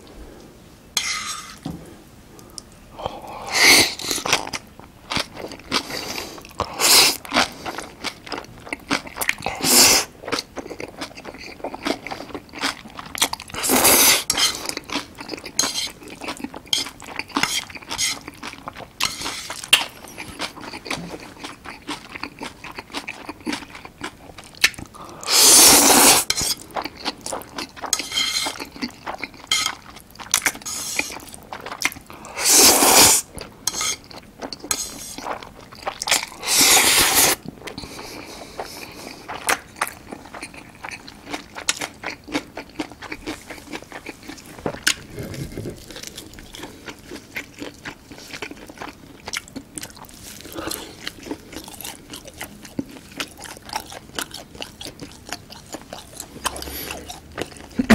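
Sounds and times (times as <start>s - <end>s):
wet chewing and mouth smacks: 10.3s - 25.0s, 26.4s - 32.3s, 37.3s - 57.9s
noodles slurping: 11.1s - 19.7s, 24.9s - 27.0s, 30.4s - 39.7s.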